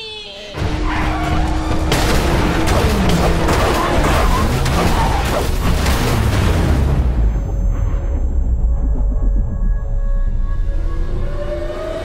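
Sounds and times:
cartoon soundtrack music: 0:00.0 - 0:12.0
booming rumbling effects: 0:00.6 - 0:11.5.

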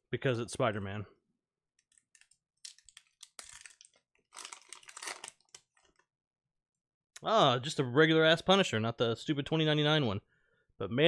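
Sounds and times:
cards flipping and rustling: 0:01.8 - 0:06.0.

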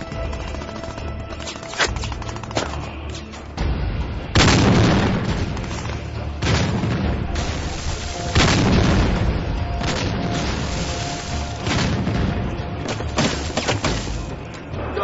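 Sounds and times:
explosions: 0:04.3 - 0:13.5.

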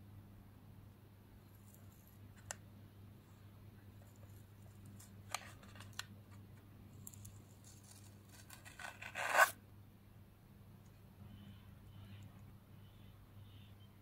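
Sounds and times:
paper label ripping: 0:07.6 - 0:09.6.

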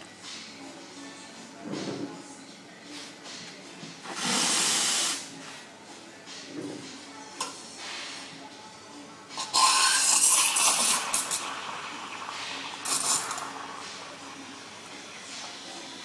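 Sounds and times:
espresso machine rattling hiss: 0:04.0 - 0:05.3, 0:09.4 - 0:13.8.

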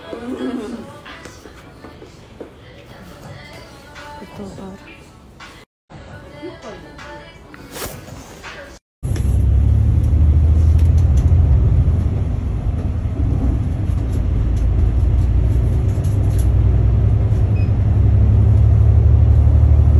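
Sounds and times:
bus engine and road rumble: 0:09.0 - 0:19.9.

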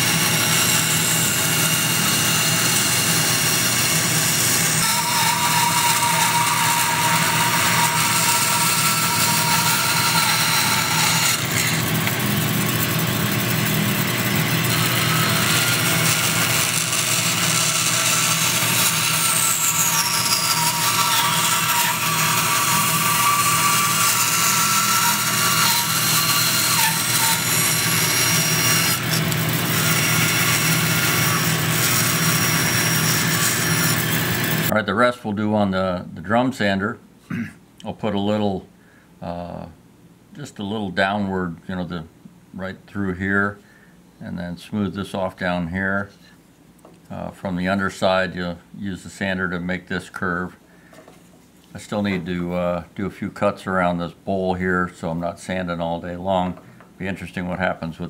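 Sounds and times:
higher saw whine: 0:00.0 - 0:22.8
bandsaw cutting wood: 0:00.0 - 0:34.7.

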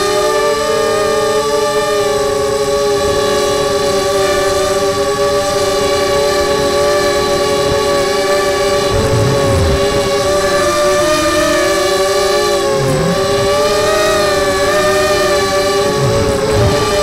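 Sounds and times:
drone motors whining: 0:06.6 - 0:17.0.

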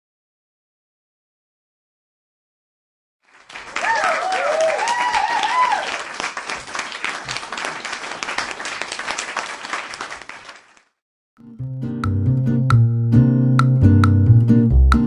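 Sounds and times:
crowd applause: 0:03.2 - 0:11.0
people cheering: 0:03.3 - 0:10.8.

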